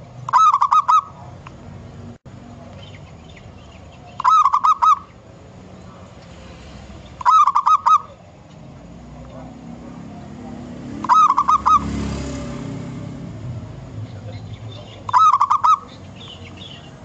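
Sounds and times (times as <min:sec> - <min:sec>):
dove cooing: 0:00.3 - 0:01.4, 0:04.0 - 0:05.1, 0:07.2 - 0:08.4, 0:09.3 - 0:12.4, 0:14.1 - 0:16.4.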